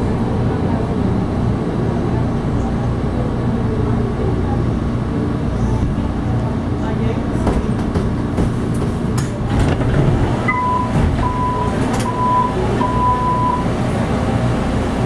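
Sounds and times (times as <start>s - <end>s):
train car rumble and hum: 0.0s - 15.0s
door-closing warning beeps: 10.4s - 13.7s.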